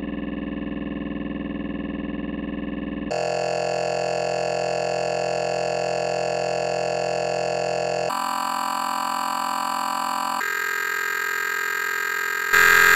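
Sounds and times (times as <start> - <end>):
synthetic electronic buzz: 3.1 - 12.9.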